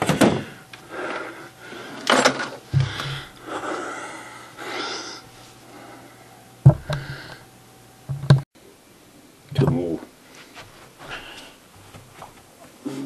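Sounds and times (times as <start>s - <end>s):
breathing close to microphone: 2.7s - 7.5s
sharp knocks: 6.7s - 7.1s.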